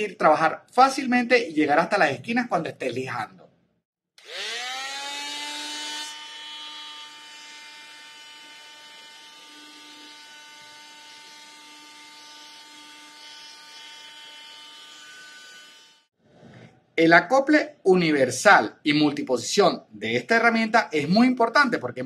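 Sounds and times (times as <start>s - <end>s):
multi-tool motor whine: 4.2s - 16.1s.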